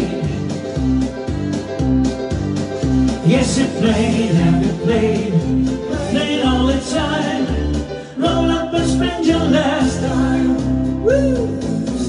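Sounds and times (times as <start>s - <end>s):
backing track music: 0.0s - 12.0s
man singing into a microphone: 3.2s - 11.5s.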